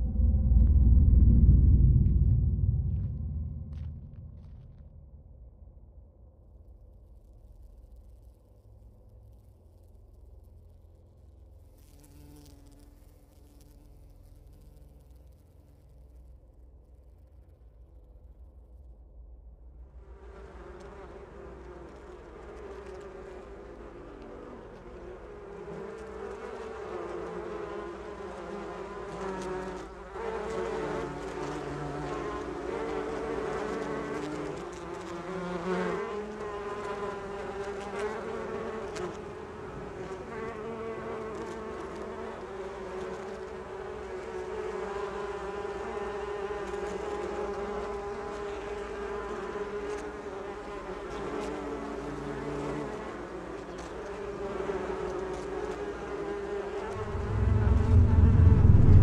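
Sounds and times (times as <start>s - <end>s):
steady low hum: 0.0s - 6.9s, 56.9s - 59.0s.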